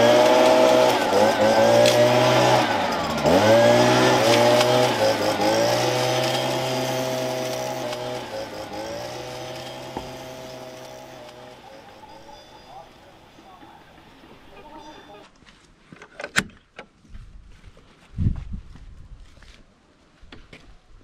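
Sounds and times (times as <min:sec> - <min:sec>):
leaf blower running: 0:00.0 - 0:15.2.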